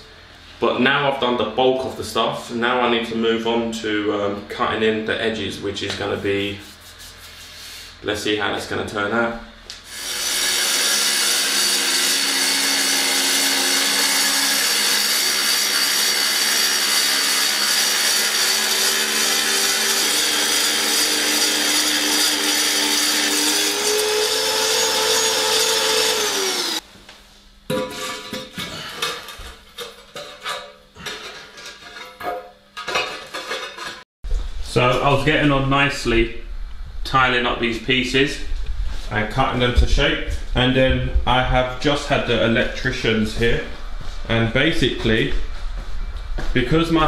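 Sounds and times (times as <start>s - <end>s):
power saw cutting tile: 9.9s - 26.8s.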